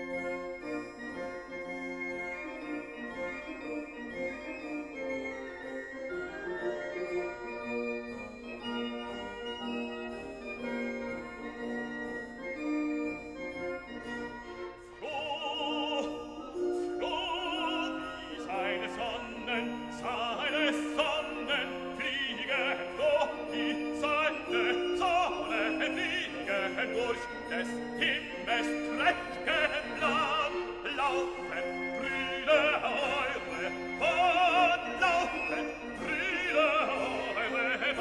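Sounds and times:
keyboard accompaniment: 0.0 - 38.0
operatic singing: 14.8 - 38.0.

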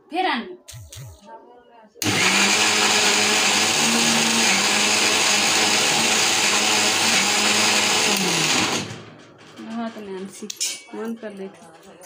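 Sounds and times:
mixer grinder running: 2.0 - 9.0.

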